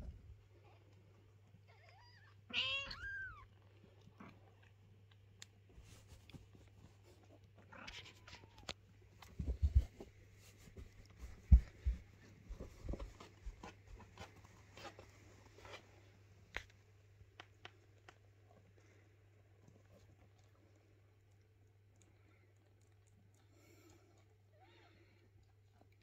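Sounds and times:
kittens suckling: 3.4s - 26.0s
soft low thumps: 9.2s - 14.0s.

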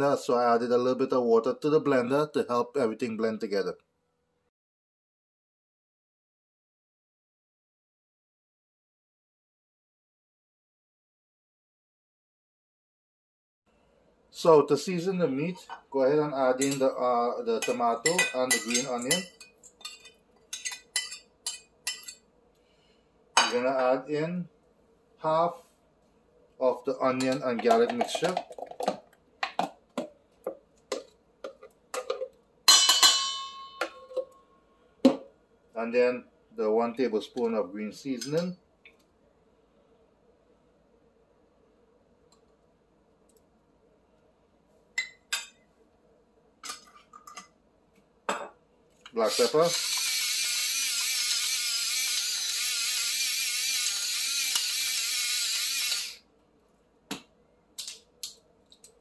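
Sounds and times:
metal clang on steel bowl: 17.6s - 20.0s, 32.1s - 34.3s
electric pepper grinder whirring: 49.2s - 56.2s.

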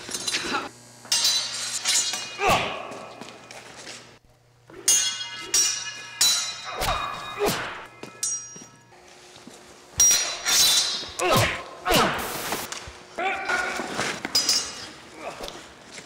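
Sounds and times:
steel swords clashing: 0.0s - 3.3s, 4.7s - 9.0s, 10.0s - 12.6s, 13.2s - 15.6s.

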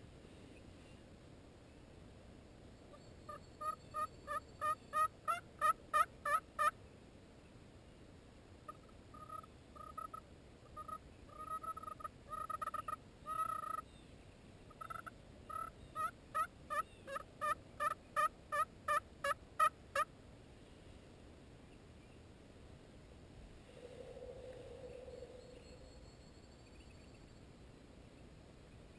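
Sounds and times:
box turkey call clucks and yelps: 2.9s - 6.8s, 8.7s - 13.9s, 14.7s - 20.1s.

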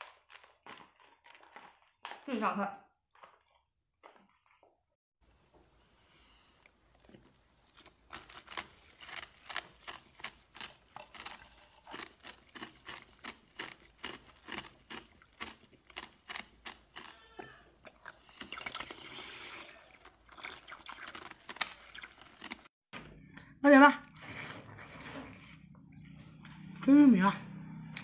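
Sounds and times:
slurp: 17.9s - 22.4s.

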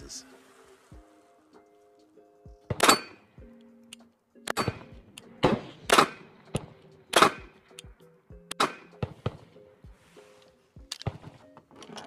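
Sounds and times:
background music: 0.0s - 12.0s
pistol shots: 2.7s - 3.2s, 4.5s - 7.8s, 8.5s - 9.5s.

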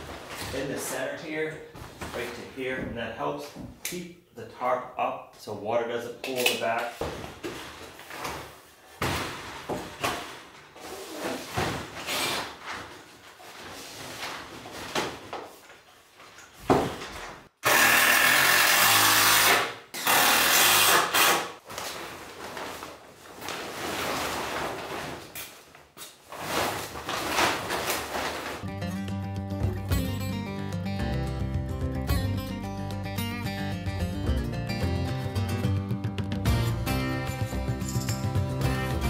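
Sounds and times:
plastic tarp rustling: 0.0s - 2.7s, 7.0s - 17.5s, 21.6s - 28.7s
power drill driving screws: 17.6s - 21.5s.

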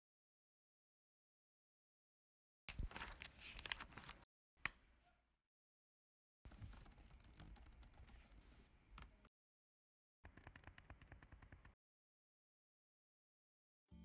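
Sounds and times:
laptop keyboard typing: 6.5s - 8.2s, 10.2s - 11.8s.

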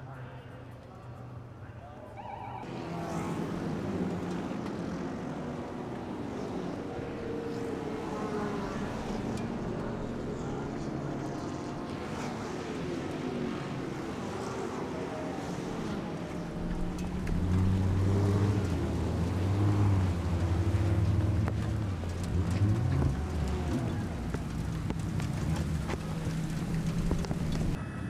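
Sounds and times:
racing car engines: 0.0s - 28.0s
rain and spray: 16.6s - 27.8s.

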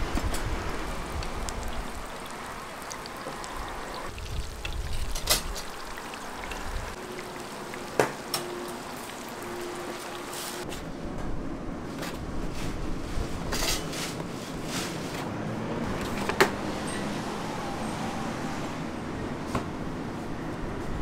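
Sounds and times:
eggs sizzling in oil: 0.6s - 10.6s.

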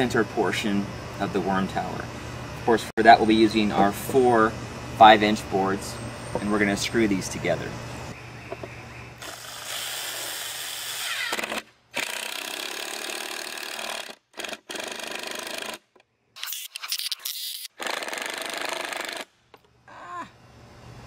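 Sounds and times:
impact driver driving screws: 9.6s - 15.8s.

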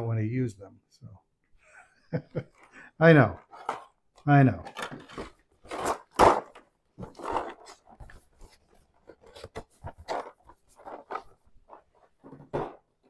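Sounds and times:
packaging rustling and crinkling: 4.7s - 13.0s.

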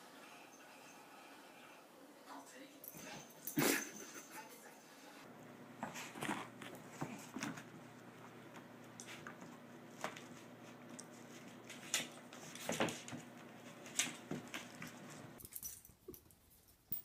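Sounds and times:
room noise: 0.0s - 15.4s
animals scuffling: 5.4s - 15.4s.

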